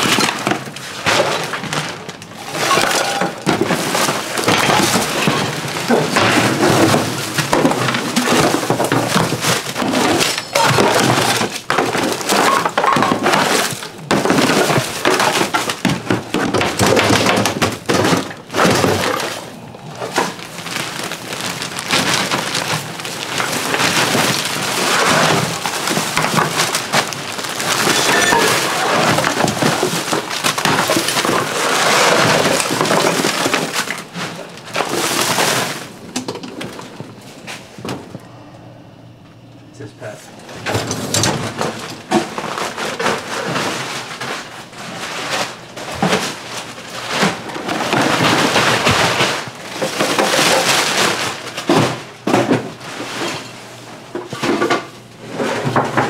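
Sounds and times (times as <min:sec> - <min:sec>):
shovel scraping tiled floor: 0:00.0 - 0:38.0
trash rattling and clattering: 0:00.0 - 0:38.5, 0:39.8 - 0:56.0.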